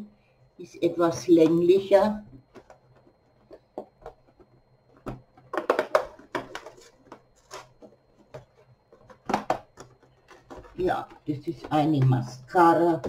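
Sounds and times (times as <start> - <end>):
packaging rustling: 2.4 - 11.4.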